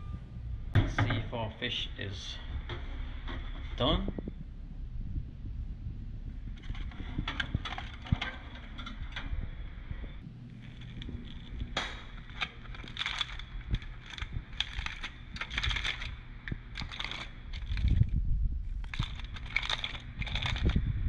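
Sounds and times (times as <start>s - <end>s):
aluminium foil crinkling: 6.5s - 9.3s, 10.5s - 18.1s, 18.7s - 20.9s.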